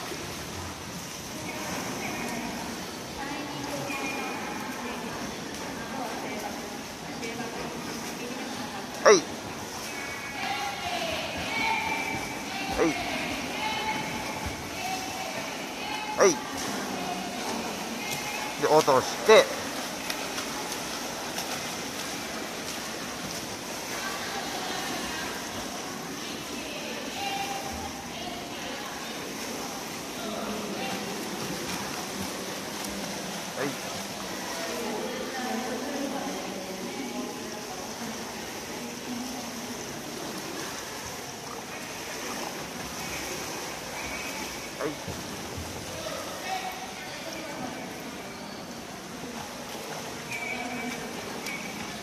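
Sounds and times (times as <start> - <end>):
swimmers splashing: 0.0 - 52.0.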